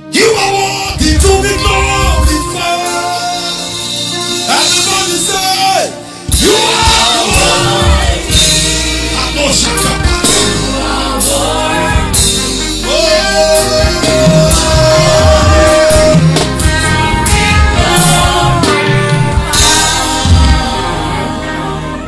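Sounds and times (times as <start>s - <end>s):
man singing lead vocals: 0.0s - 21.3s
band with drums: 0.2s - 22.0s
backing vocalists singing: 6.3s - 22.0s.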